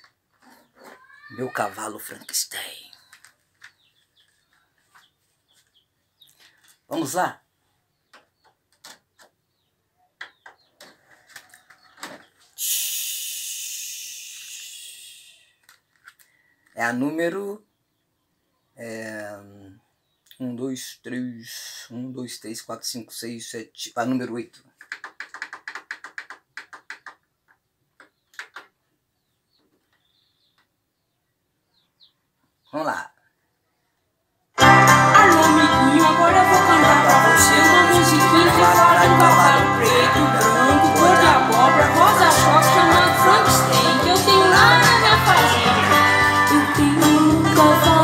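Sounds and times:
steady hiss: 0:12.6 - 0:15.4
plastic case clicking and knocking: 0:24.8 - 0:27.6.

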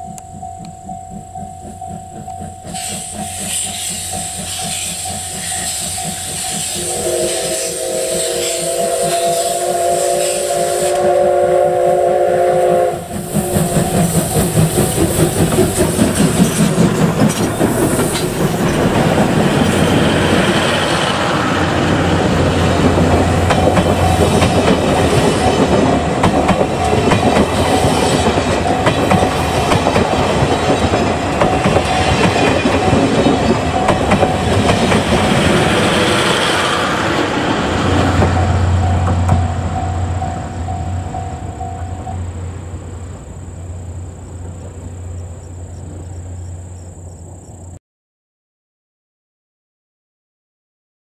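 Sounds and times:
train wheels clattering: 0:00.0 - 0:11.8, 0:12.4 - 0:42.9
steam locomotive exhaust beats: 0:00.0 - 0:47.8
steam whistle: 0:02.7 - 0:14.8.

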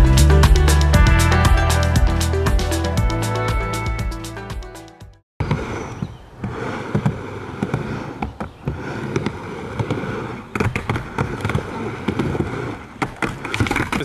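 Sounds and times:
skateboard wheels rumbling: 0:05.4 - 0:14.0.

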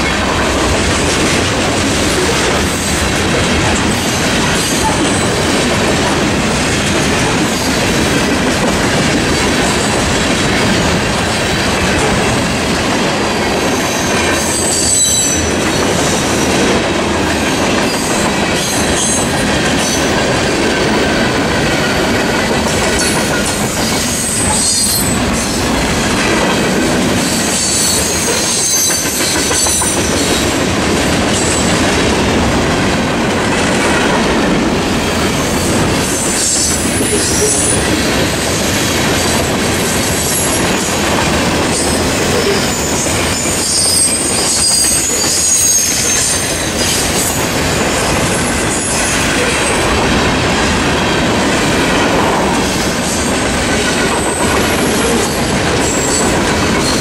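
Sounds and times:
train wheels rumbling on rails: 0:00.0 - 0:57.0
wheel squeal: 0:23.8 - 0:25.2, 0:42.3 - 0:47.4.

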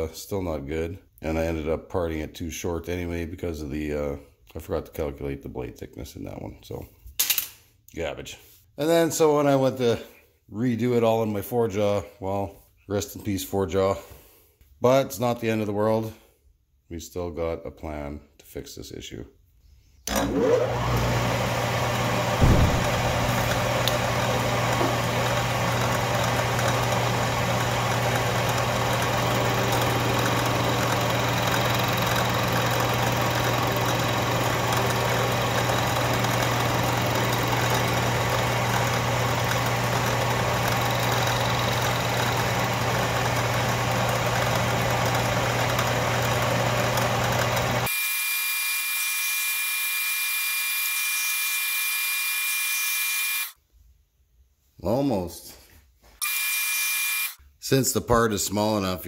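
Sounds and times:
lathe cutting metal: 0:20.1 - 0:47.9
motor hum: 0:20.1 - 0:47.9.

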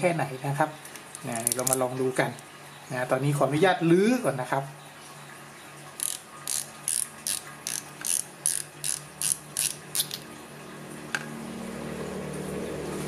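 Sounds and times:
fishing reel cap clicking: 0:06.0 - 0:10.2.

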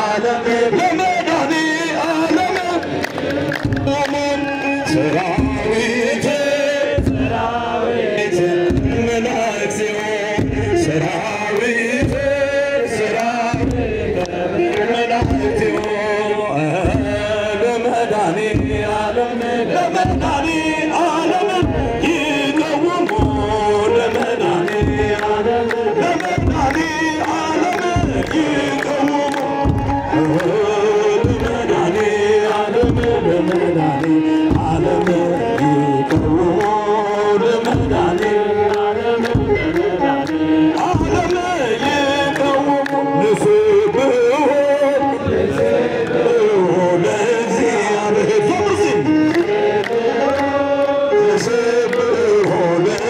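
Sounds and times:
many voices chanting a hymn: 0:00.0 - 0:53.0
deep drum beat: 0:02.2 - 0:04.4, 0:05.0 - 0:07.8, 0:08.5 - 0:09.5, 0:10.2 - 0:43.7.

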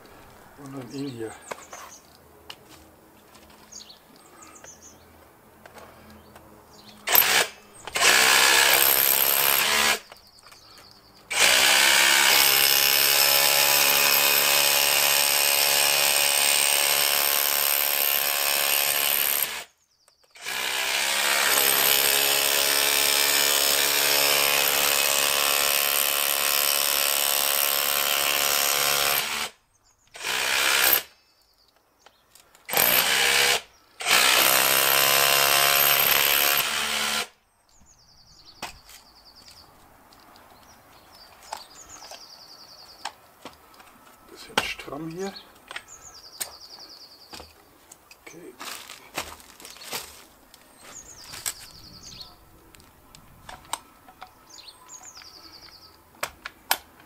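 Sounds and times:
rotary hammer chiselling: 0:32.7 - 0:37.3.

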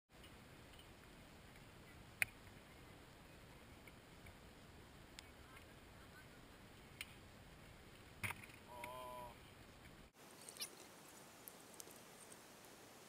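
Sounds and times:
faint background hiss: 0:00.1 - 0:13.0
person crying out: 0:08.7 - 0:09.3.

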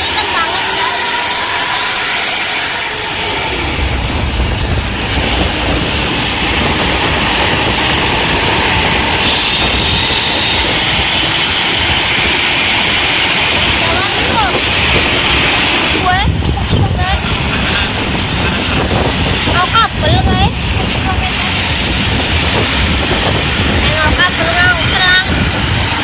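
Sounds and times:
bus engine and exhaust rushing: 0:00.0 - 0:26.0.

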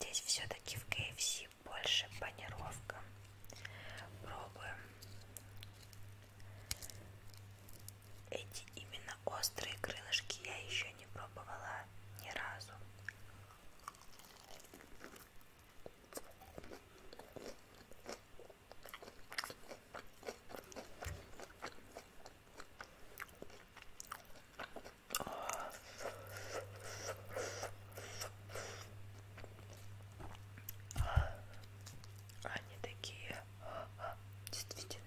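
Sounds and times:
chewing crispy fried chicken: 0:13.0 - 0:32.5.

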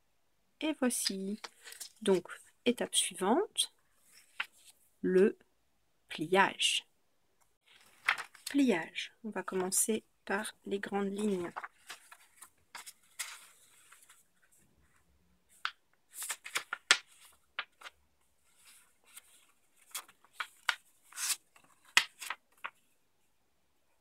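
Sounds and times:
paper being folded and creased: 0:01.0 - 0:02.1, 0:07.7 - 0:08.6, 0:11.0 - 0:22.9.

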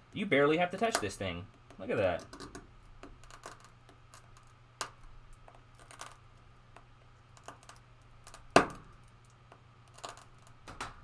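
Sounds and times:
glass cracking: 0:02.0 - 0:06.2, 0:07.3 - 0:11.0.

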